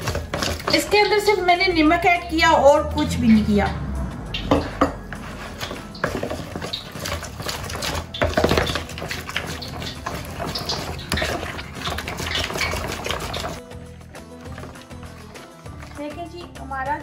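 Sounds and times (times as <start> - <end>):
utensil scraping a bowl: 0.0 - 1.4, 5.1 - 13.6
wet stirring: 0.0 - 2.2, 4.4 - 16.5.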